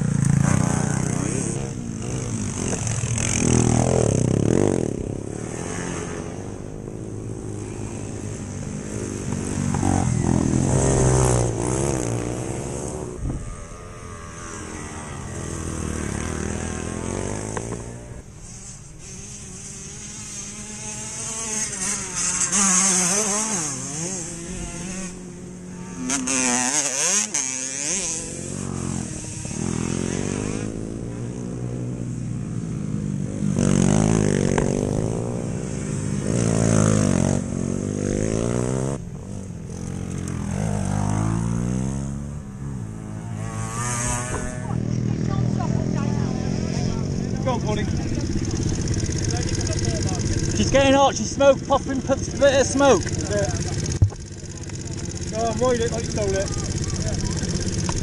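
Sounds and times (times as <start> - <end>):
motorcycle engines revving past: 0.0 - 58.0.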